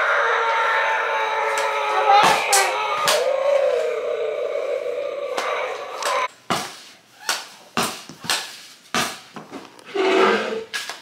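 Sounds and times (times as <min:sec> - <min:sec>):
child's voice: 0:01.5 - 0:03.6.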